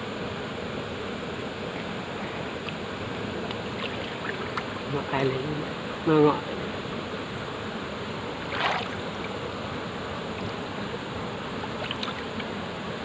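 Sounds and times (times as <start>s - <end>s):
stream rushing: 0.8s - 13.0s
water sloshing and splashing: 3.4s - 4.9s, 8.4s - 9.4s, 11.7s - 12.5s.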